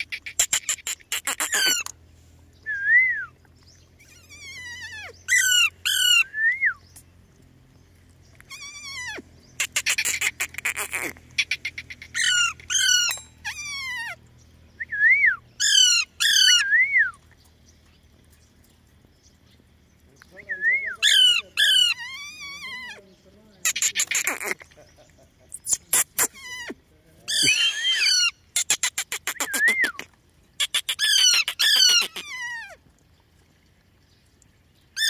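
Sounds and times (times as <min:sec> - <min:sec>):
parakeets chattering and screeching: 0:00.0 - 0:02.0, 0:04.0 - 0:06.2, 0:08.3 - 0:14.3, 0:15.6 - 0:16.6, 0:20.9 - 0:32.8.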